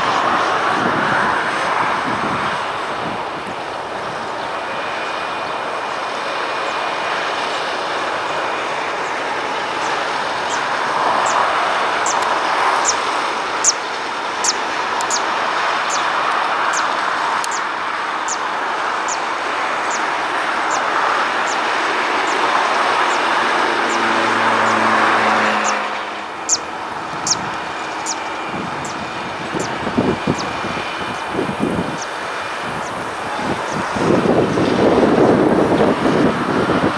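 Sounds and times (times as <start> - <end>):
distant jet engines: 0.0 - 36.9.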